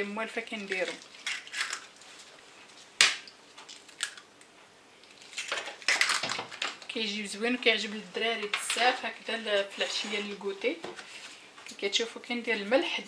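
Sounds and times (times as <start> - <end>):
eggshell crackling: 0.3 - 7.1
eggs cracking over plastic bowl: 0.5 - 2.0, 3.0 - 7.0.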